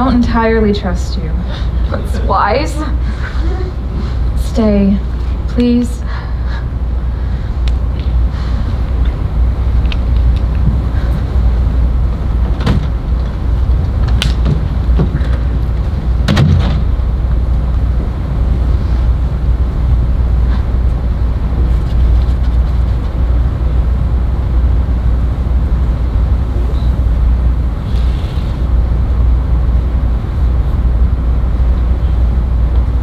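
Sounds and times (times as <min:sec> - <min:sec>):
steady low hum: 0:00.0 - 0:33.0
door shutting: 0:12.4 - 0:13.0, 0:16.2 - 0:17.0.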